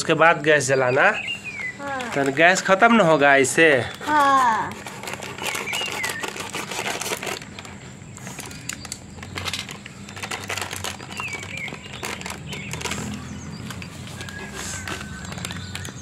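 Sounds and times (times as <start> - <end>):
bird chirping: 0.4 - 6.8, 7.4 - 16.0
plastic packet crinkling: 1.7 - 3.2, 3.8 - 16.0.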